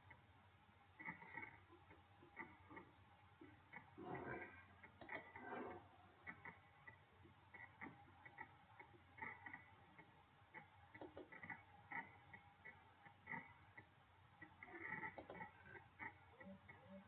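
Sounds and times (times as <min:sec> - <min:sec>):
mouse scroll wheel: 0:03.7 - 0:17.0
computer mouse clicking: 0:07.6 - 0:13.4.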